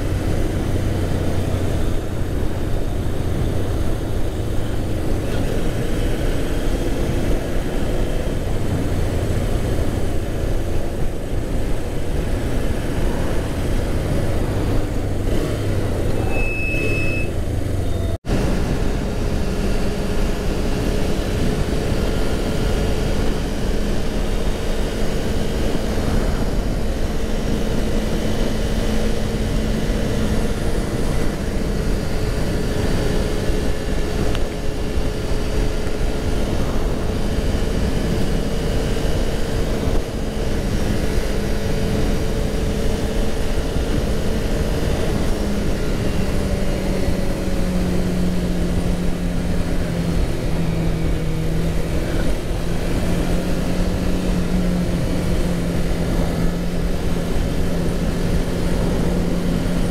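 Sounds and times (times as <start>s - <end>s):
motorcycle engine running: 0.0s - 59.9s
wind rushing over microphone: 0.0s - 59.9s.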